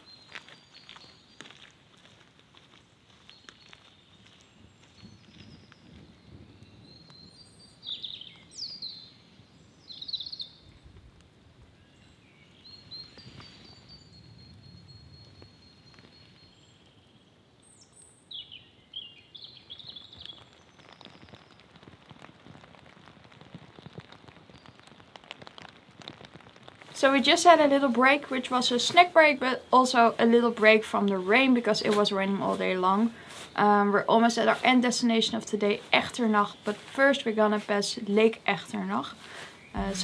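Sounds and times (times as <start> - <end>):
birds chirping: 0.0 - 10.6, 26.9 - 40.0
light rain patter and drips: 0.0 - 40.0.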